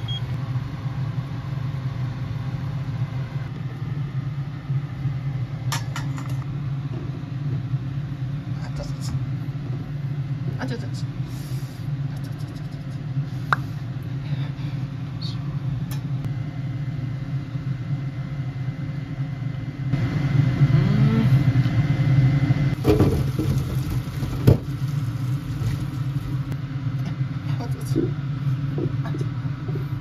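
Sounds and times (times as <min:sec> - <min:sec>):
steady low hum: 0:00.0 - 0:30.0
water pouring into colander: 0:22.8 - 0:26.5.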